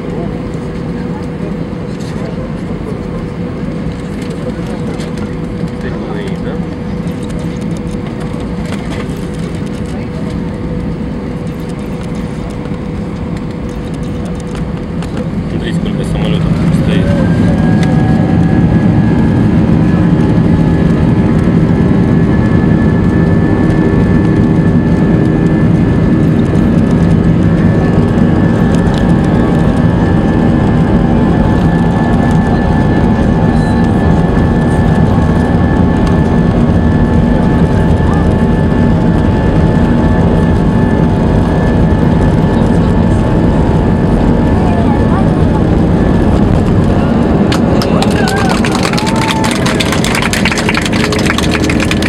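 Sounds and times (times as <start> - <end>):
jet engines rumbling and whining: 0.0 - 52.0.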